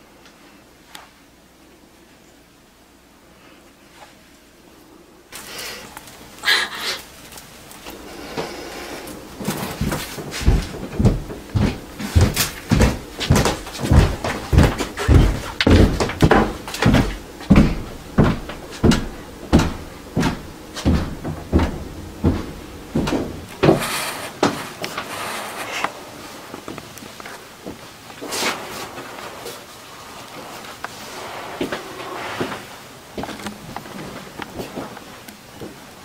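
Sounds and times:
heavy thumps: 7.8s - 24.6s.

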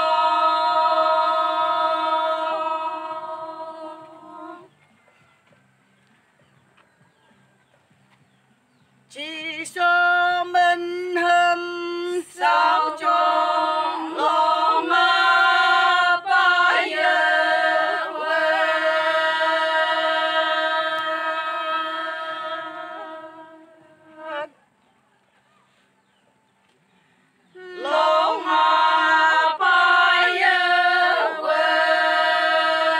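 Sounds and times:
women singing unaccompanied: 0.0s - 4.8s, 9.1s - 24.6s, 27.5s - 32.9s.

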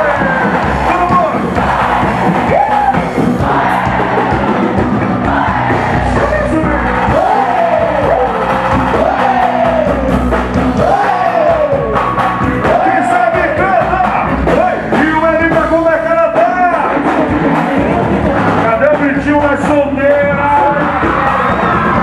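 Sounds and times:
live band music: 0.0s - 22.0s
man singing: 10.8s - 17.8s.

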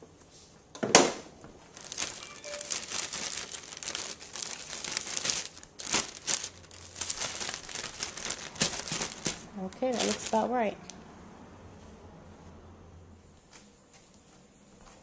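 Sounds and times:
scratchy crinkly scraping: 1.7s - 10.6s.

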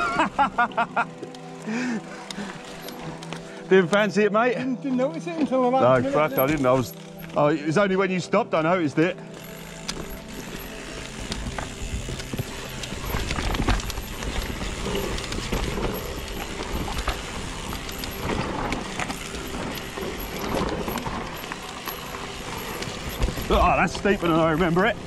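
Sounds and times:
tyres running over dirt: 0.0s - 25.0s
bike clattering over bumps: 9.3s - 25.0s.

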